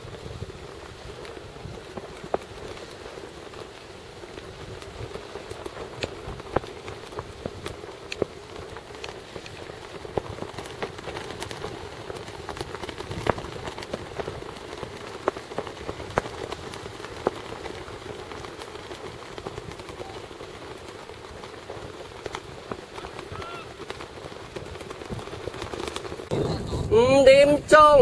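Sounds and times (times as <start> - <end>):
small clicks and crackles: 0.0 - 28.0
steady outdoor hiss: 0.0 - 28.0.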